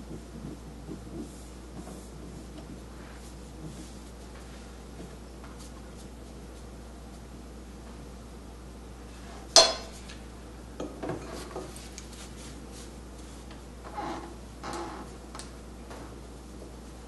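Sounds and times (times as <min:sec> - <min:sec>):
soft brushing on dish: 0:00.1 - 0:07.3, 0:11.2 - 0:13.5
brush clinking on ceramic dish: 0:09.6 - 0:10.0.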